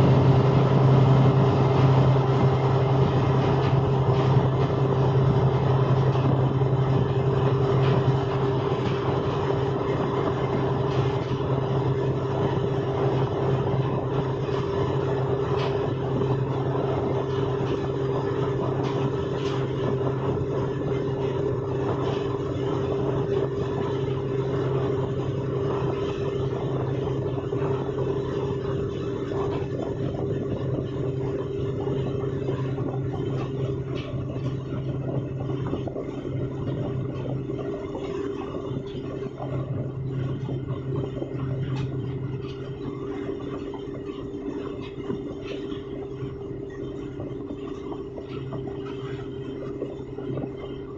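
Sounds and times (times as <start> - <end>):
boat engine droning: 0.0 - 50.9.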